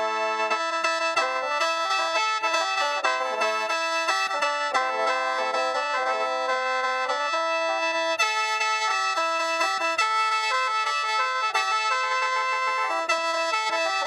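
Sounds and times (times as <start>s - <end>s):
bamboo mouth organ playing: 0.0s - 14.0s.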